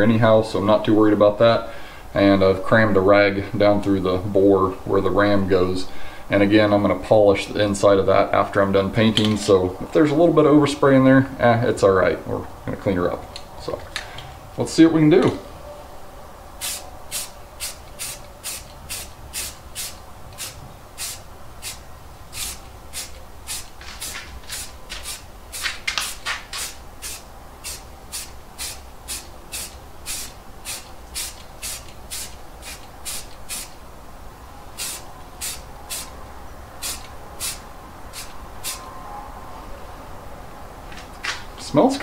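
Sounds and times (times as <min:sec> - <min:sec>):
aerosol can spraying: 0:16.6 - 0:33.8, 0:34.8 - 0:36.1, 0:36.8 - 0:38.8.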